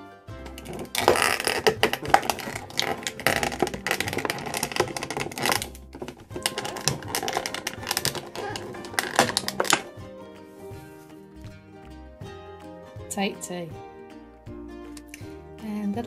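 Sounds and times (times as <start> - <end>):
plastic clicking and crackling: 0.4 - 10.0.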